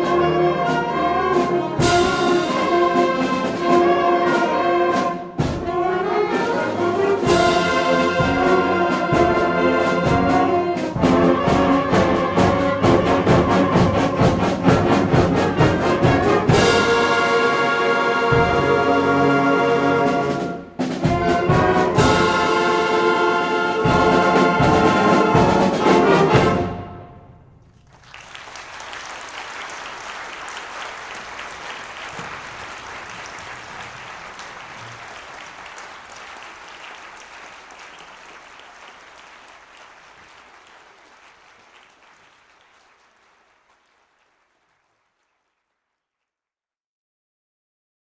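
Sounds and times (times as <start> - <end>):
drum strokes: 0.0 - 26.7
concert band brass chords: 0.0 - 27.6
audience applause: 27.7 - 45.9.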